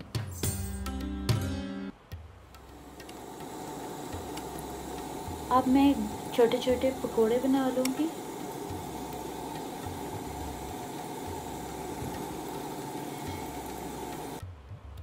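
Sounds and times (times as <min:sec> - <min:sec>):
food deep-frying in hot oil: 0:02.6 - 0:14.4.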